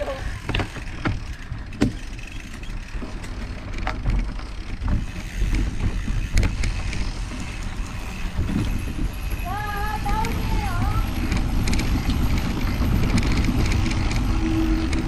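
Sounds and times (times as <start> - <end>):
bike rattling over bumps: 0.0 - 15.0
bike tyres rumbling on dirt: 0.0 - 15.0.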